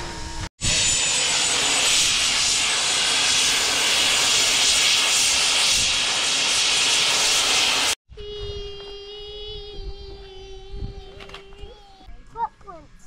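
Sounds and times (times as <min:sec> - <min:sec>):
locomotive steam hissing: 0:00.6 - 0:08.0.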